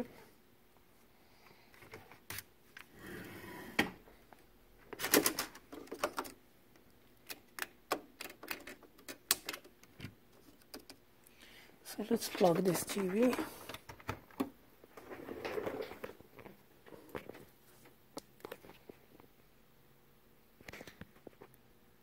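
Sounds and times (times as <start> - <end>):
parts and cables clicking: 4.9 - 11.0.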